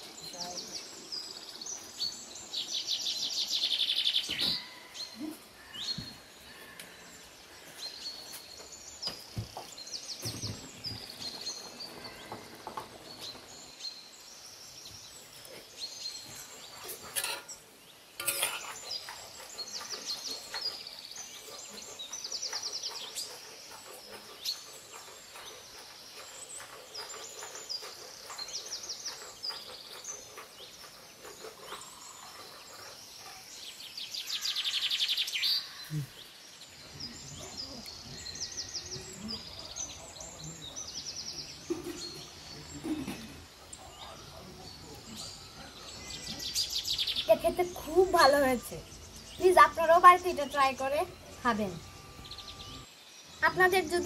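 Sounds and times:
small birds chirping: 0.0s - 54.0s.

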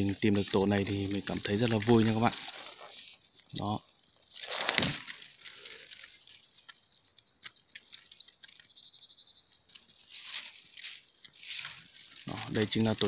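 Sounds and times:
bird nestlings cheeping: 0.0s - 13.0s
loud rustle: 4.4s - 6.2s, 9.8s - 13.0s.

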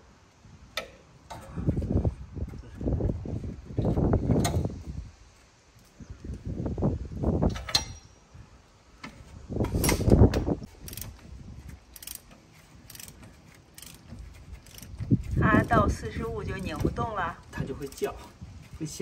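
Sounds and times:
ratchet wrench clicking: 10.7s - 11.2s, 11.9s - 15.4s.

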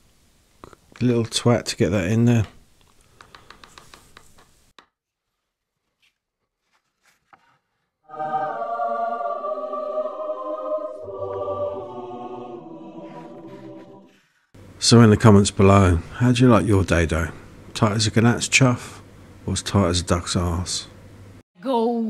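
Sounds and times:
choir singing held chords: 8.1s - 14.2s.

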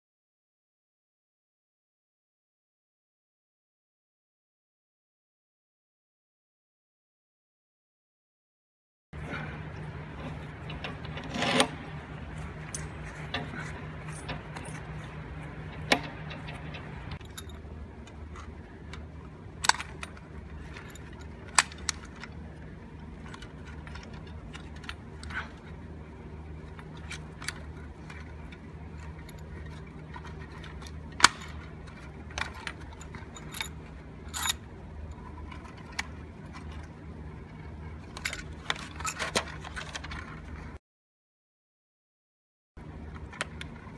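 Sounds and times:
steady low hum: 9.2s - 40.8s, 42.8s - 43.9s
metallic clinks and rattles: 9.4s - 36.9s, 37.5s - 40.6s.

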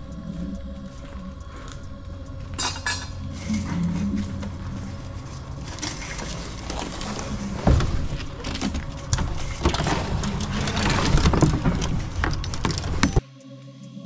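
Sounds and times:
heavy knocks: 4.0s - 13.2s.

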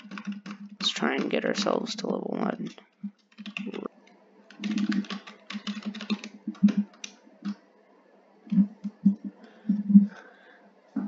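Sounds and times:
computer keyboard typing: 0.0s - 1.7s, 2.6s - 3.9s, 4.5s - 7.6s.

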